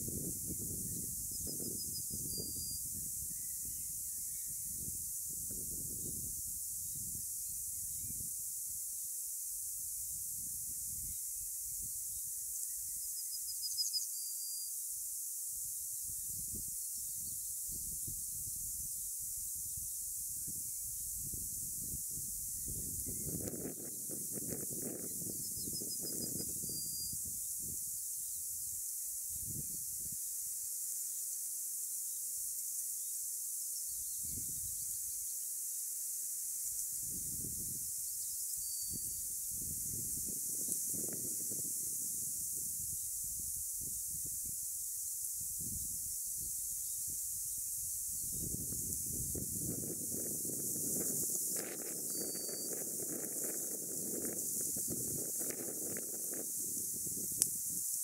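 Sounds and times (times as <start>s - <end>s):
wind rumbling on microphone: 0.0s - 8.9s, 9.8s - 12.5s, 15.7s - 30.3s, 34.0s - 35.2s, 36.8s - 58.0s
steady high-pitched hiss: 0.0s - 58.0s
small bird calling: 52.0s - 52.8s.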